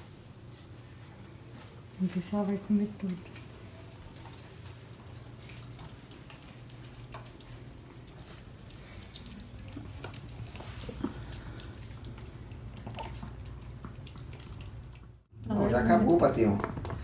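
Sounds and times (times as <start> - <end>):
steady low hum: 0.0 - 16.8
dog licking and chewing: 2.8 - 15.6.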